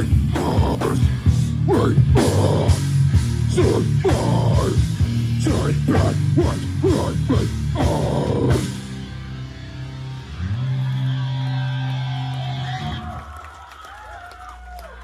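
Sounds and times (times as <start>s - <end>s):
heavy rock band playing: 0.0s - 13.2s
person shouting vocals: 5.5s - 8.7s.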